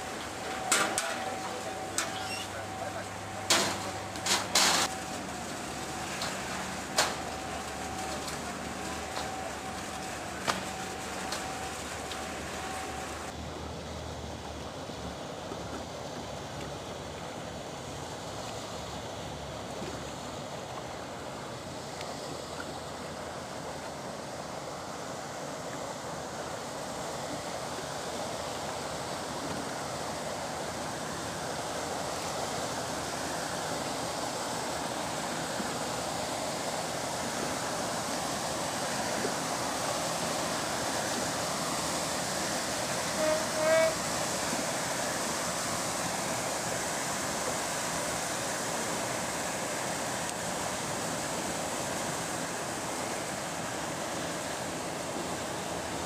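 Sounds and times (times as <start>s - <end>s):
lake waves: 0.0s - 56.0s
paddle wheels churning water: 0.0s - 56.0s.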